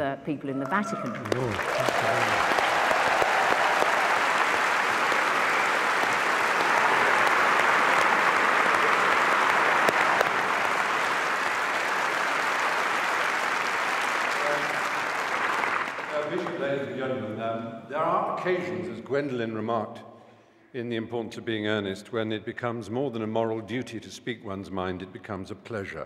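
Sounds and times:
large audience applauding: 0:00.6 - 0:17.0.

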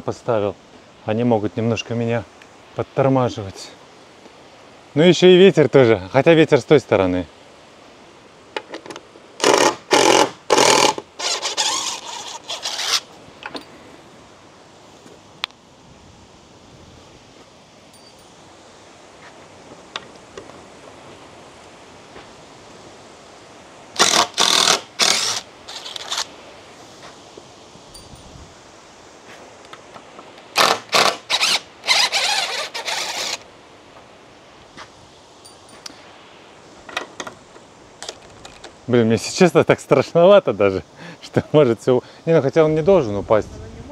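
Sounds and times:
ratchet strap ratcheting: 0:09.4 - 0:13.1, 0:24.0 - 0:26.3, 0:30.6 - 0:33.4.

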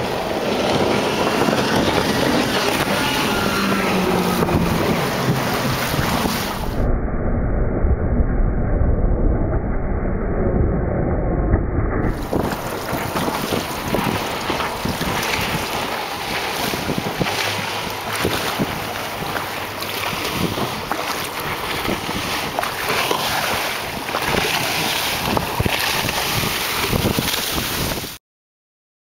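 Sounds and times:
choppy water splashing: 0:00.0 - 0:06.9, 0:12.0 - 0:28.2
boat engine running: 0:00.0 - 0:07.1, 0:09.0 - 0:28.1
wind buffeting microphone: 0:00.0 - 0:28.2.

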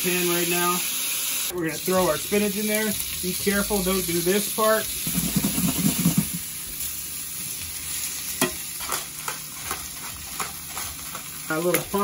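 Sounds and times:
spinach sizzling in a frying pan: 0:00.0 - 0:12.0
pan shaken: 0:05.0 - 0:06.4.

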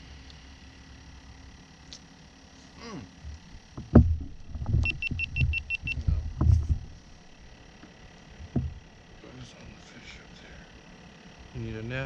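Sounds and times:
knocks and thumps on boat deck: 0:03.7 - 0:07.0, 0:08.4 - 0:08.9.

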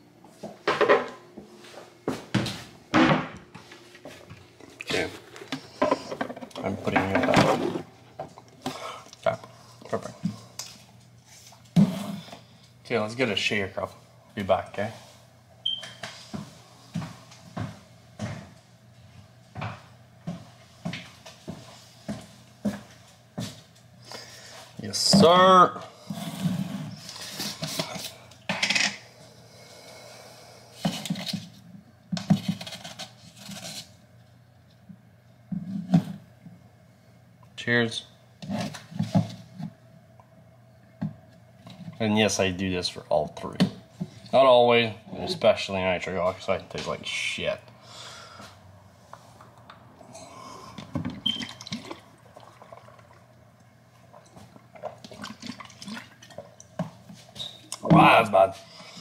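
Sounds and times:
plastic containers scraping and clattering: 0:04.9 - 0:08.0
person gulping: 0:50.0 - 0:53.5
liquid sloshing in bottle: 0:51.0 - 0:53.4, 0:54.0 - 0:56.9.

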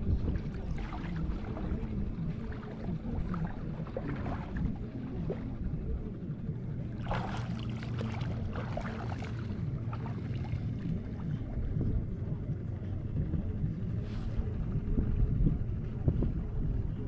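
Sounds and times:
water lapping and splashing: 0:00.0 - 0:12.8
boat engine humming: 0:00.0 - 0:17.0.

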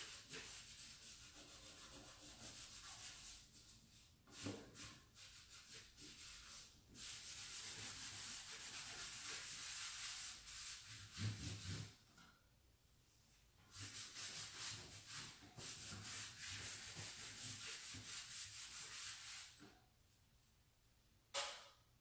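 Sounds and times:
cloth rag rubbing wood: 0:04.3 - 0:12.0, 0:13.7 - 0:19.6.

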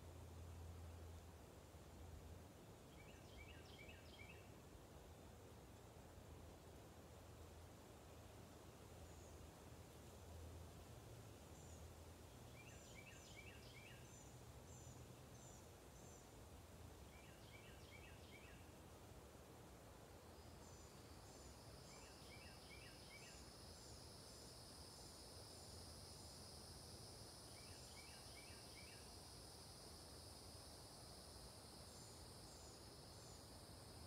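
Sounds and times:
bird chirping: 0:12.4 - 0:16.3.

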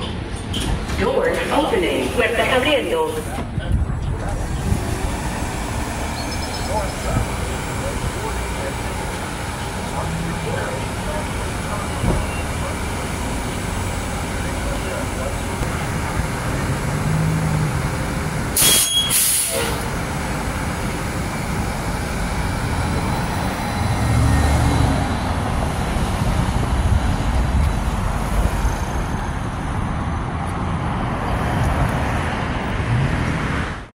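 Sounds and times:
electric bus whir: 0:00.0 - 0:33.9
street traffic: 0:00.0 - 0:33.9
air brake hiss: 0:18.6 - 0:19.8.

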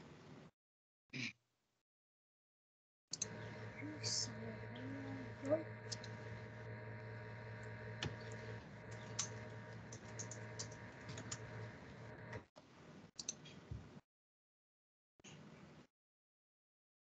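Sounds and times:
computer clicking: 0:03.1 - 0:12.5
low steady hum: 0:03.2 - 0:12.5.

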